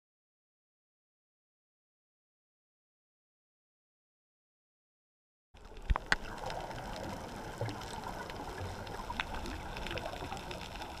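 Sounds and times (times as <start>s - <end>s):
muffled underwater hiss: 5.6s - 11.0s
underwater clicks and crackles: 5.6s - 11.0s.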